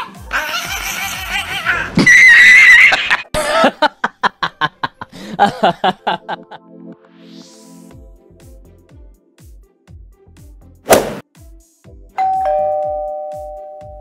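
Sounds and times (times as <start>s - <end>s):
shrill wavering cry: 0.0s - 3.2s.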